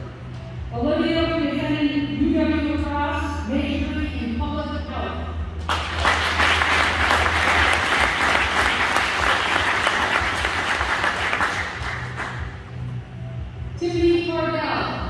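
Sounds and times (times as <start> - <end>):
audience clapping: 5.6 - 12.7.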